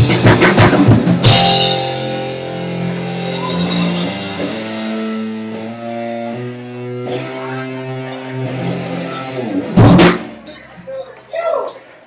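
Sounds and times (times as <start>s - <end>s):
guitar chords ringing: 1.2s - 10.4s.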